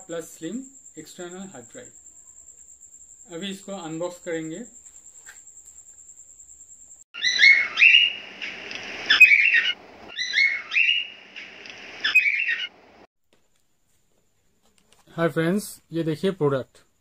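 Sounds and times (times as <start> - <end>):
birdlike chirping sound effect: 7.2 - 12.8.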